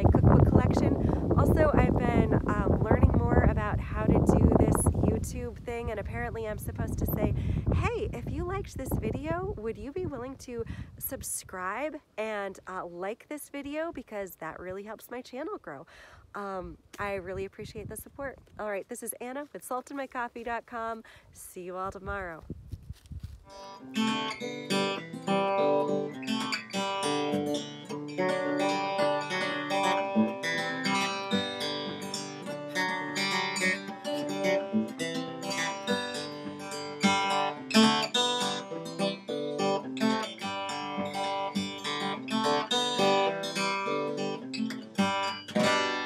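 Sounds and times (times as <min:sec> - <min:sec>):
acoustic guitar picking and strumming: 0:00.0 - 0:15.8, 0:23.5 - 0:46.0.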